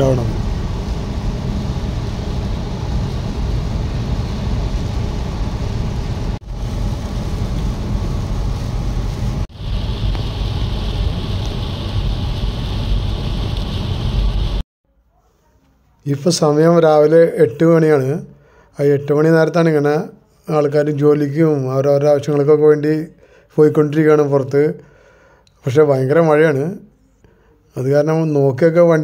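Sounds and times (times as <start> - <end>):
rain and spray hiss: 0.0 - 14.6.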